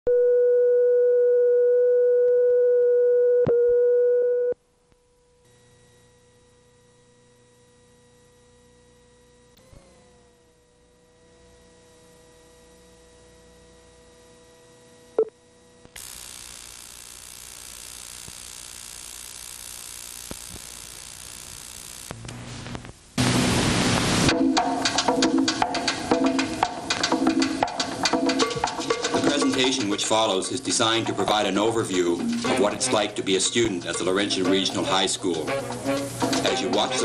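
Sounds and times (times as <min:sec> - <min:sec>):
tape hiss and hum: 0:00.1 - 0:37.0
steady test tone: 0:23.2 - 0:37.0.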